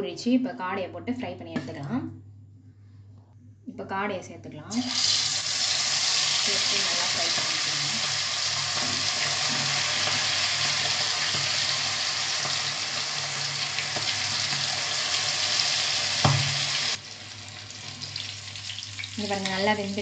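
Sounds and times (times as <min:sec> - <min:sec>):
meat deep-frying in oil: 0:04.7 - 0:20.0
sharp knock: 0:16.2 - 0:16.6.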